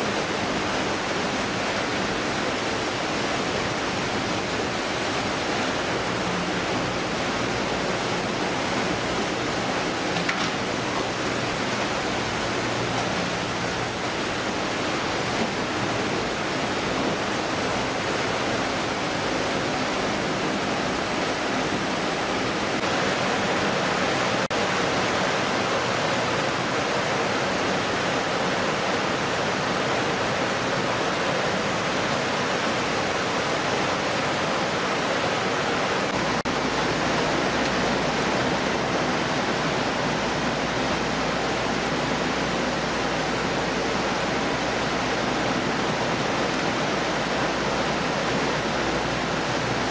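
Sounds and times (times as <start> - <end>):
conveyor machinery running: 0.0 - 49.9
running water: 0.0 - 49.9.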